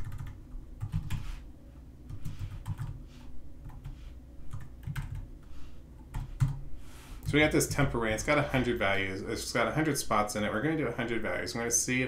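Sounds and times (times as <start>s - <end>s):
typing on computer keyboard: 0.0s - 1.2s, 2.1s - 3.0s, 3.6s - 5.3s, 6.1s - 6.6s.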